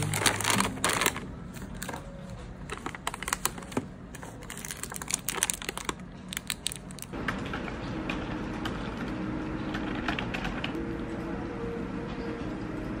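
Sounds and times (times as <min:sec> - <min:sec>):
snack packets crinkling: 0:00.0 - 0:07.1.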